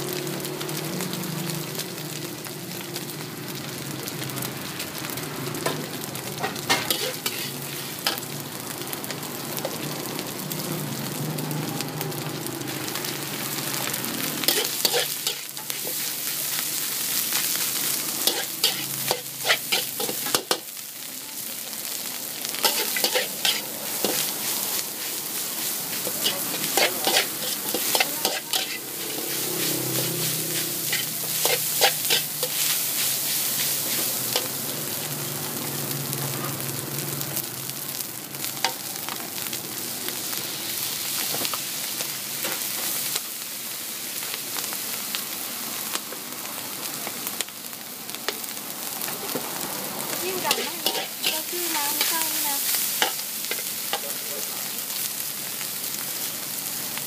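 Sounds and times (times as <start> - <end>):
food sizzling: 0.0 - 57.0
metal spatula scraping wok: 6.4 - 8.2, 14.4 - 16.4, 17.7 - 20.7, 22.6 - 34.6, 50.3 - 54.2.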